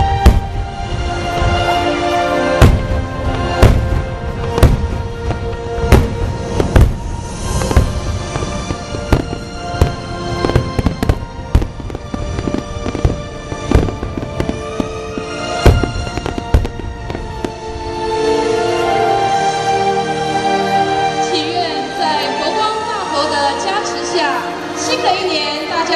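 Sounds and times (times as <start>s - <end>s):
fireworks bursting: 0.0s - 18.8s
background music with held tones: 0.0s - 25.9s.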